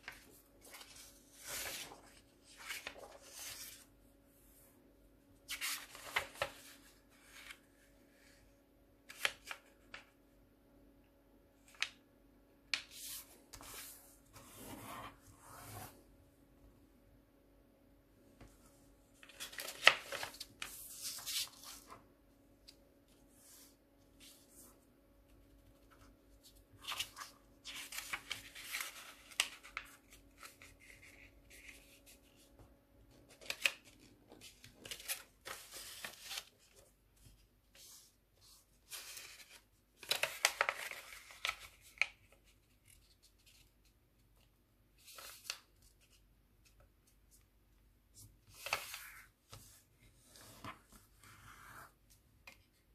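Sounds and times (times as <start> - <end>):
paper crinkling and rustling: 0.0 - 3.9, 5.5 - 7.7, 19.2 - 22.0, 25.8 - 38.0, 38.9 - 43.7.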